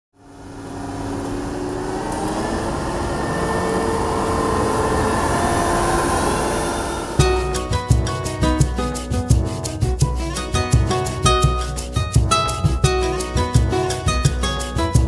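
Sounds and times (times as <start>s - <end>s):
whining machine tones: 0.2s - 7.7s
combine harvester drone: 0.2s - 9.7s.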